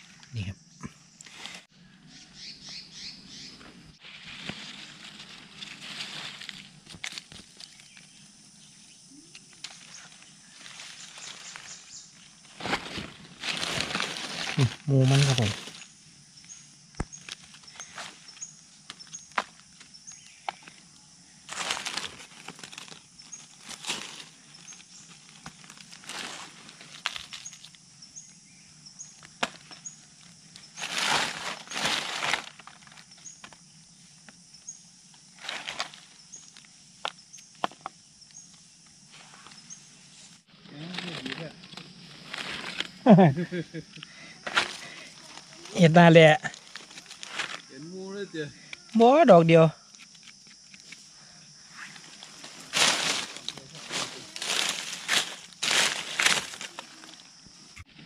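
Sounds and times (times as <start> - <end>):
faint high chirp: 0.0 - 4.0
leaf litter rustling and crunching: 4.0 - 8.2, 9.5 - 15.9, 21.5 - 27.8, 29.4 - 33.6, 35.4 - 36.6, 40.6 - 43.8, 44.4 - 48.0, 51.8 - 57.4
twigs snapping: 4.4 - 8.1, 12.5 - 15.9, 21.5 - 27.8, 52.5 - 57.0.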